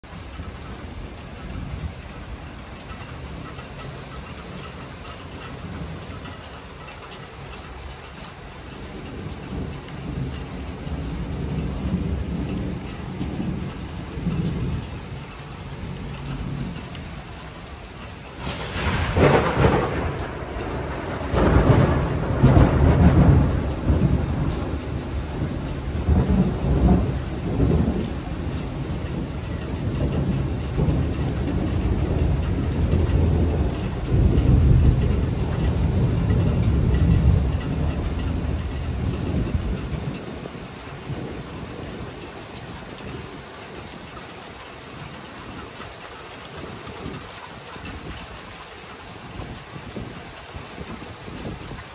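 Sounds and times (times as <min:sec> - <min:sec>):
rolling thunder rumbles: 0:00.0 - 0:44.1, 0:49.0 - 0:51.9
steady rain falling: 0:00.0 - 0:51.9
thunder crack: 0:18.4 - 0:39.7.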